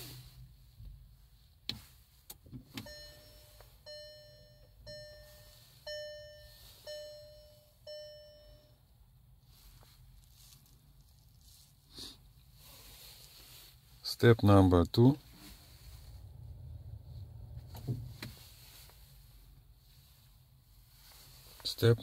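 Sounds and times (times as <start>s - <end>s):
car warning chime dings: 2.6s - 9.0s.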